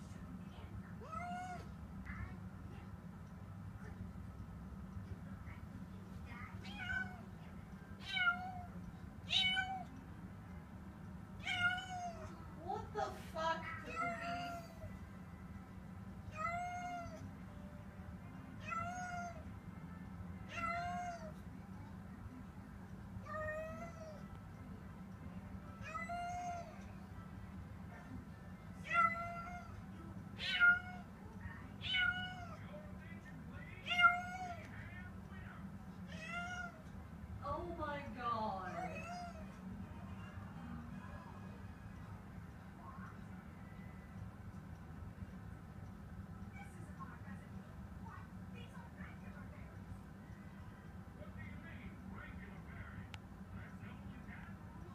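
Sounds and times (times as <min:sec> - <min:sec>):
steady low hum: 0:00.0 - 0:54.9
cat meowing: 0:01.0 - 0:01.7, 0:08.0 - 0:09.9, 0:11.4 - 0:12.3, 0:13.9 - 0:14.9, 0:16.3 - 0:17.2, 0:18.6 - 0:19.4, 0:20.5 - 0:21.4, 0:25.8 - 0:26.9, 0:28.8 - 0:29.8, 0:30.4 - 0:31.1, 0:31.8 - 0:32.6, 0:33.8 - 0:34.7, 0:36.1 - 0:36.8, 0:38.7 - 0:39.5.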